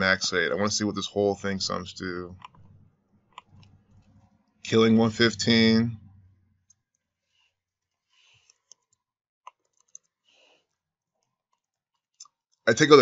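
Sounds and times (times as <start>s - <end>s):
keyboard and mouse clicks: 2.4s - 4.4s, 8.4s - 10.1s.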